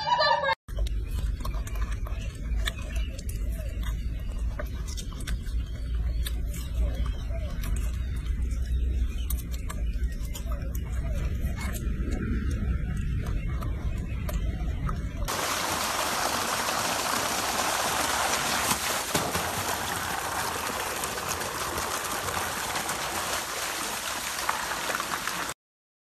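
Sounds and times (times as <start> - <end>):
water rushing and splashing: 15.3 - 25.6.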